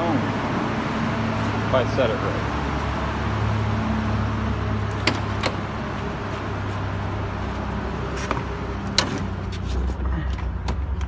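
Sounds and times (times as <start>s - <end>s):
low engine hum: 0.0s - 11.0s
car door and cabin clicks: 4.9s - 5.6s.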